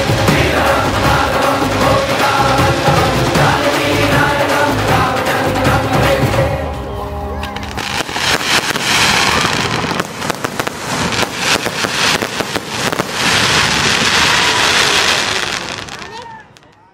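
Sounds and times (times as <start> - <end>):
fireworks bursting: 7.6 - 16.8.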